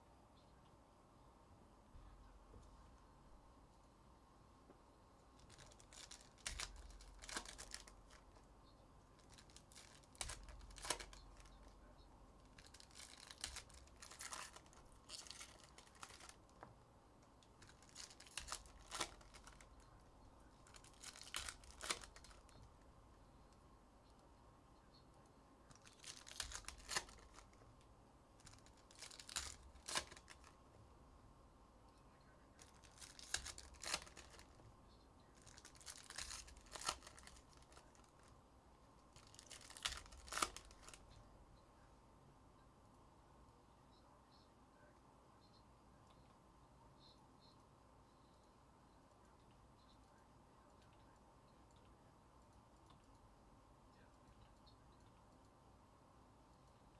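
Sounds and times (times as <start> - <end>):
foil wrappers tearing and crinkling: 5.4 - 8.4, 9.2 - 11.6, 12.4 - 16.4, 17.6 - 19.8, 20.6 - 22.5, 25.7 - 27.6, 28.4 - 30.5, 32.6 - 34.6, 35.4 - 38.3, 39.2 - 41.0.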